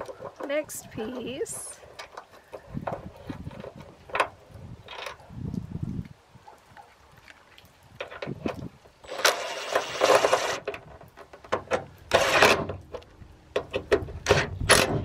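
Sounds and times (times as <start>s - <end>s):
power drill tightening bolt: 9.0s - 10.8s, 11.6s - 12.8s.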